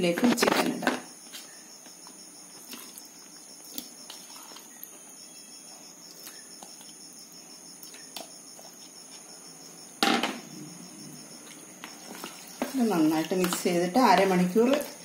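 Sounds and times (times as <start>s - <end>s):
crickets chirping: 0.0s - 15.0s
kitchenware knock: 10.0s - 10.4s.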